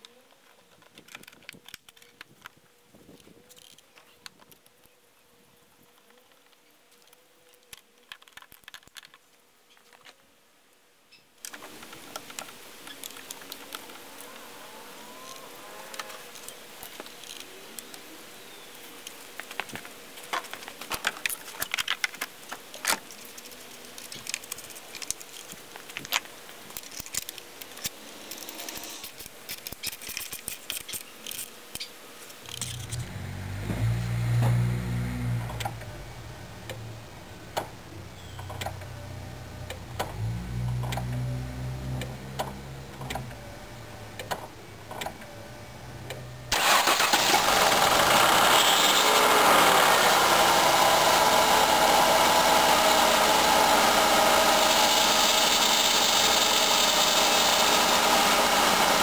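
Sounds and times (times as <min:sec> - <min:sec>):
car engine starting: 0:32.7 - 0:59.0.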